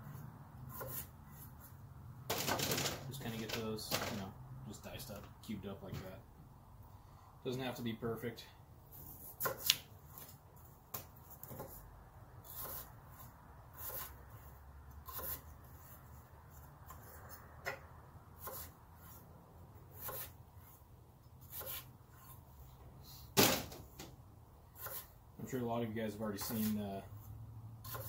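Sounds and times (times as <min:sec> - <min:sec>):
knife cutting potatoes: 0:00.0 - 0:01.8, 0:09.0 - 0:10.3, 0:11.0 - 0:19.3, 0:19.9 - 0:20.8, 0:21.4 - 0:22.4, 0:24.8 - 0:25.2, 0:26.3 - 0:26.9.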